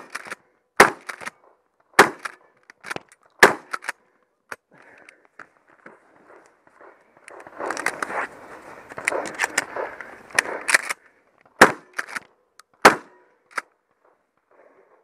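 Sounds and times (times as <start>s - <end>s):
shotgun shots: 0.8s - 1.3s, 2.0s - 2.4s, 3.4s - 3.9s, 11.6s - 12.2s, 12.8s - 13.3s
rustling and clicking handling noise: 1.0s - 12.8s.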